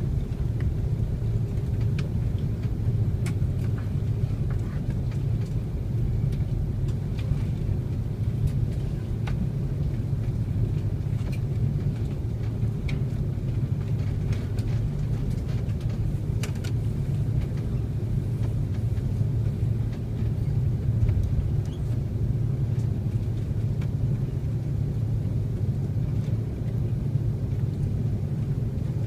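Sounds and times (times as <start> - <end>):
aircraft cabin low rumble: 0.0 - 29.0.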